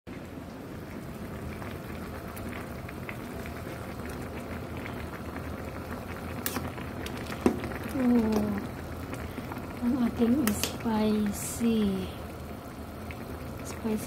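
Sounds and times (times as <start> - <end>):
broth boiling and bubbling: 0.1 - 14.0.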